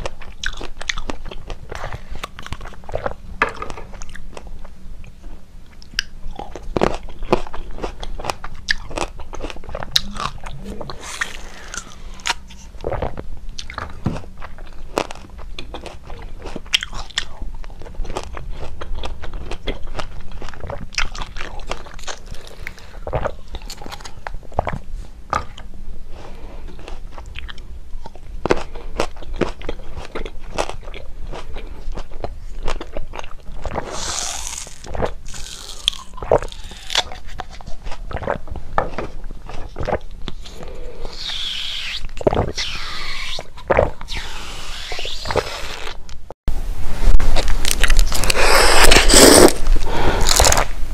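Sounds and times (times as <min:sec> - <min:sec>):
chewing: 0:00.0 - 0:46.0
hissing slurp: 0:41.0 - 0:43.5, 0:44.1 - 0:46.0, 0:48.2 - 0:50.6.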